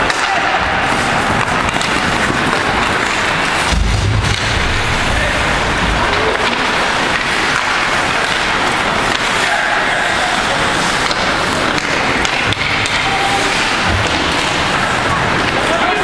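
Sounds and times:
hockey stick or puck clacks: 0.0s - 4.6s, 6.1s - 16.0s
skates scraping on ice: 0.0s - 16.0s
steady noisy background: 0.0s - 16.0s.

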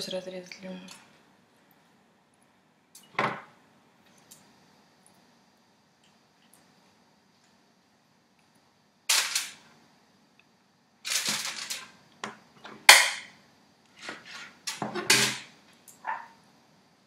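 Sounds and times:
aluminium foil crinkling: 11.0s - 11.9s.

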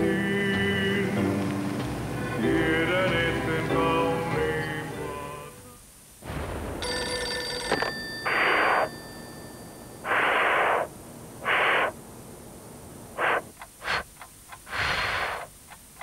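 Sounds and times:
telephone ringing tone: 6.8s - 10.2s
hiss bursts over phone line: 10.0s - 12.0s, 13.2s - 16.0s.

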